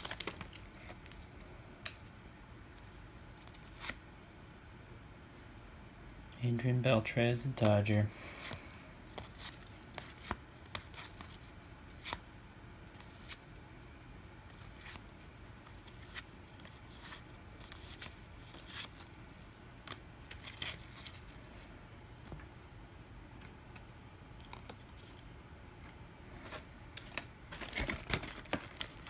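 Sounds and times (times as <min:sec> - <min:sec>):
faint low hum: 0:00.0 - 0:29.0
cards flipping and swishing: 0:08.4 - 0:12.2.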